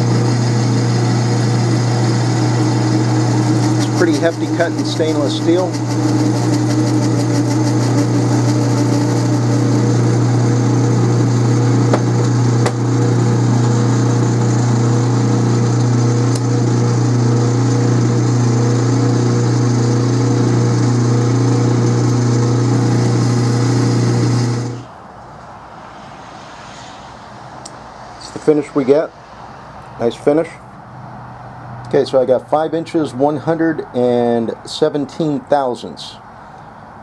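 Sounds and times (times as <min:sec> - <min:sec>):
lathe cutting metal: 0:00.0 - 0:24.9
low hum: 0:22.2 - 0:31.9.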